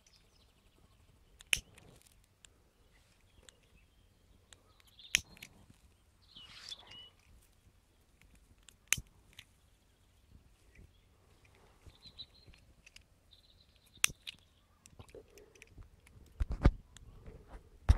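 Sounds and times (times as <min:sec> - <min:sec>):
faint high chirps: 0:02.8 - 0:07.4, 0:09.5 - 0:12.7
sharp clicks and knocks: 0:13.8 - 0:17.9.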